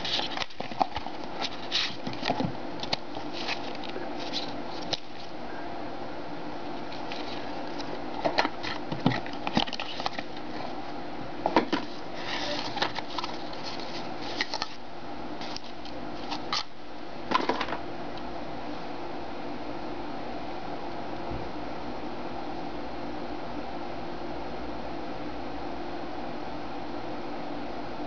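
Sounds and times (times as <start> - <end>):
paper rustle: 0.0 - 5.4, 6.8 - 10.8, 11.7 - 14.8, 15.4 - 16.7.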